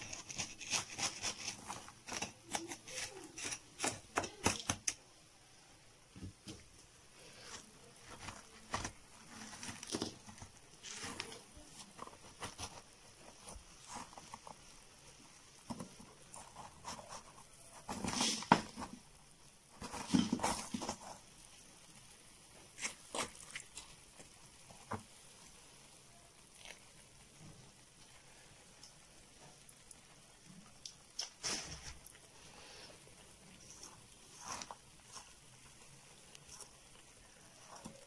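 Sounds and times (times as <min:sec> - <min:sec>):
fork scraping salt crust: 0:00.0 - 0:05.0
salt grains crunching: 0:00.0 - 0:05.0, 0:07.3 - 0:19.1, 0:22.6 - 0:25.5, 0:30.6 - 0:38.0.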